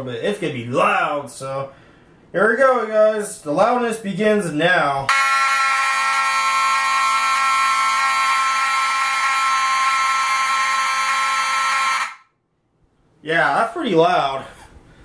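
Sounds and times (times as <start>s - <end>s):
fire alarm horns buzzing: 5.1s - 12.3s.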